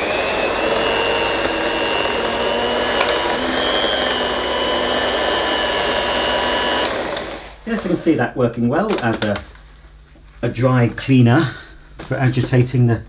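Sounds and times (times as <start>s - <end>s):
electric carpet brush whining: 0.0s - 7.6s.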